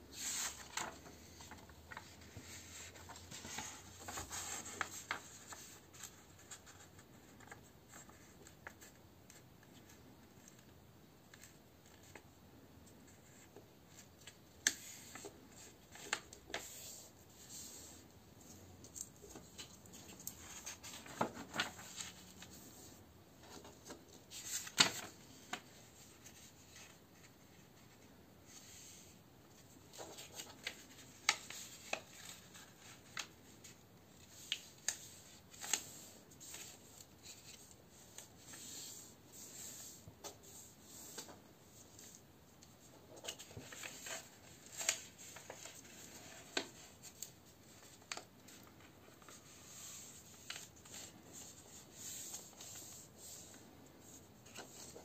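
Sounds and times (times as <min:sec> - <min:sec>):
paper creasing crackles: 0:00.2 - 0:10.7, 0:18.4 - 0:27.3, 0:43.1 - 0:55.0
paper rustling: 0:00.2 - 0:10.7, 0:13.1 - 0:28.9, 0:29.6 - 0:55.0.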